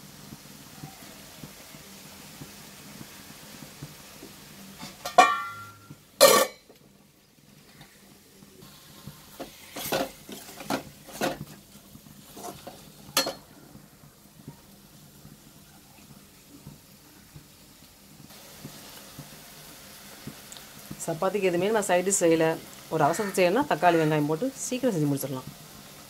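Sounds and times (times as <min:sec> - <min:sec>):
spoon scraping metal pan: 0:09.3 - 0:11.6, 0:12.3 - 0:13.4.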